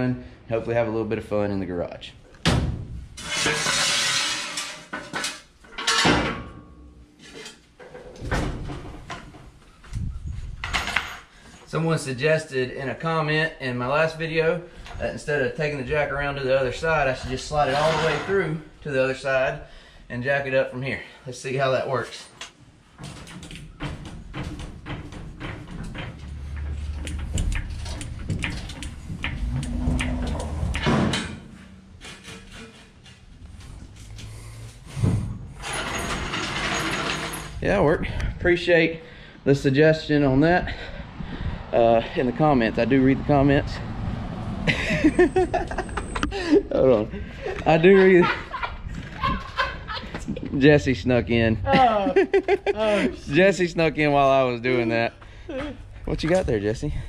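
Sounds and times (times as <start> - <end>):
metal scraping on concrete: 3.2 - 6.1, 7.2 - 7.9, 16.8 - 18.7, 25.3 - 37.6
metal knocks: 23.0 - 33.1
floor jack rattling on concrete: 35.6 - 37.6.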